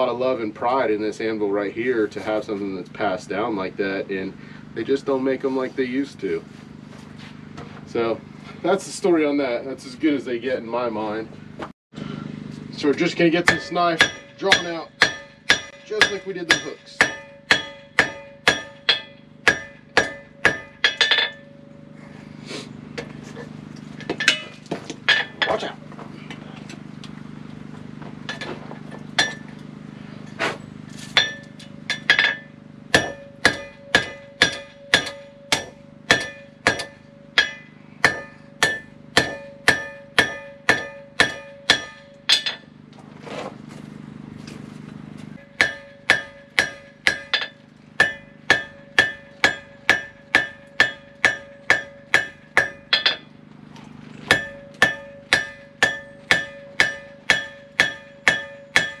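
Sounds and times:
hammer ringing on anvil: 0:13.3 - 0:22.0, 0:24.1 - 0:25.6, 0:29.2 - 0:29.6, 0:31.1 - 0:42.7, 0:45.4 - 0:53.3, 0:54.3 - 0:59.0.

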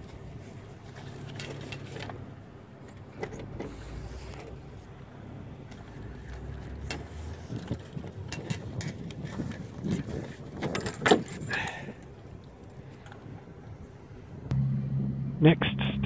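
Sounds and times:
rigging clattering: 0:05.7 - 0:13.2.

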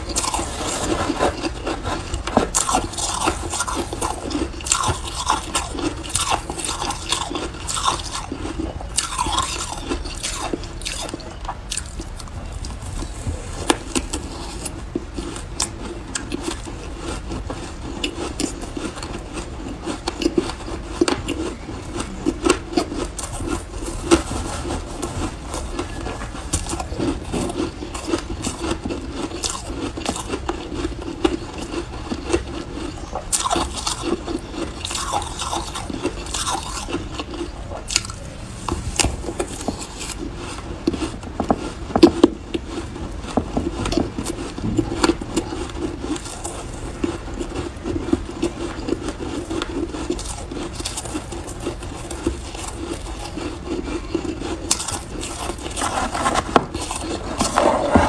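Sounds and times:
metal spoon scraping ice: 0:00.0 - 0:11.3, 0:43.8 - 0:58.0
ice being chewed: 0:00.0 - 0:58.0.

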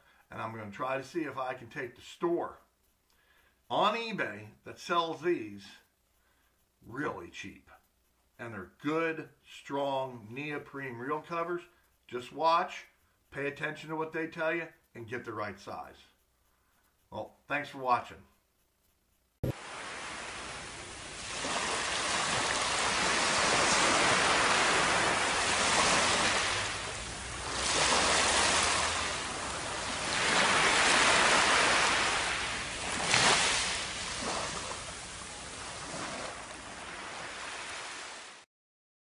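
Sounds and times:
waves washing on sandy beach: 0:19.4 - 0:38.4.

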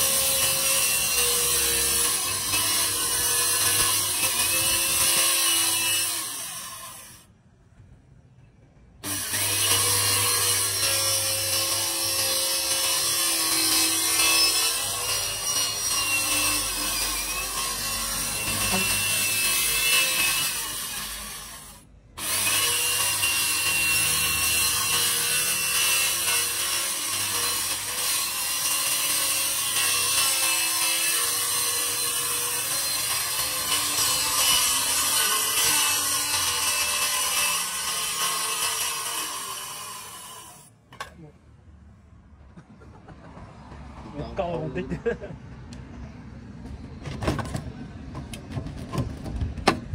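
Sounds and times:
circular saw cutting board: 0:00.0 - 0:07.3, 0:09.0 - 0:41.1.

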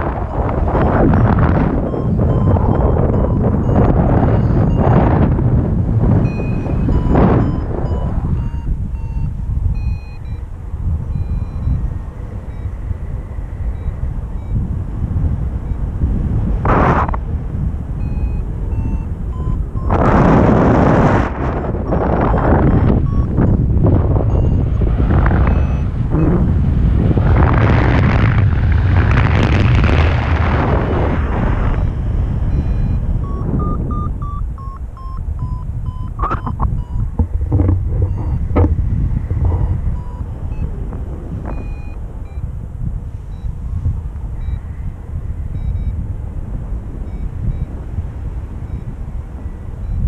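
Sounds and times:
variometer short beeps: 0:00.0 - 0:17.2, 0:17.9 - 0:26.4, 0:31.1 - 0:42.6, 0:43.2 - 0:46.1, 0:46.9 - 0:50.0
wind rumble on microphone: 0:00.0 - 0:50.0.

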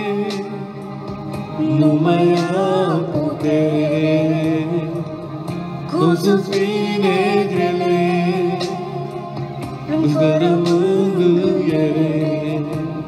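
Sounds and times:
instrumental backing: 0:00.0 - 0:13.0
person singing long notes: 0:01.6 - 0:13.0.

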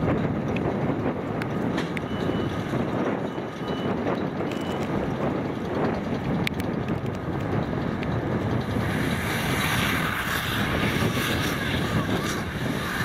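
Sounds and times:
tractor engines and baling machinery: 0:00.0 - 0:13.0.

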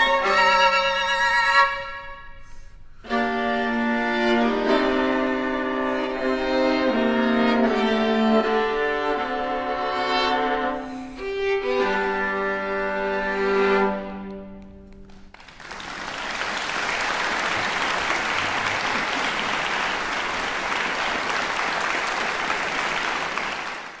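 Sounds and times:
audience applause: 0:15.0 - 0:24.0.

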